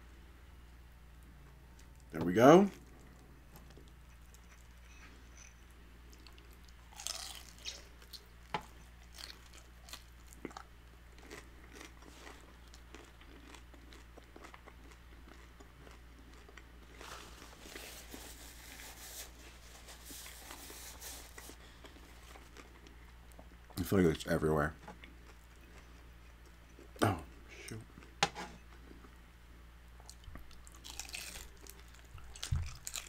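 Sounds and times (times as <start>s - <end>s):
crunchy chewing: 2.7s - 18.2s, 30.0s - 33.0s
paper napkin rustling: 17.0s - 21.6s.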